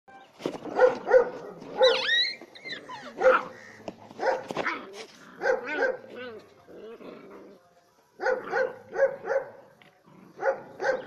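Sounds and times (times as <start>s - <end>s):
dogs barking and yelping: 0.6s - 6.3s, 10.3s - 11.0s.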